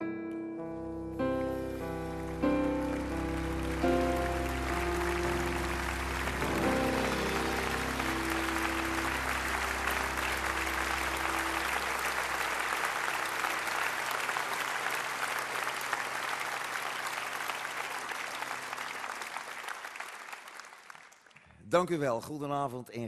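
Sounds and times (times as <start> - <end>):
held music chord: 0.2 - 14.5
audience applauding: 1.4 - 21.4.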